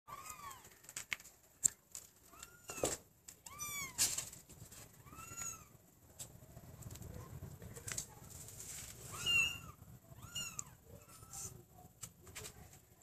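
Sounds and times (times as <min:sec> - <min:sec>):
cat meowing: 0:03.4 - 0:04.0, 0:09.1 - 0:11.6.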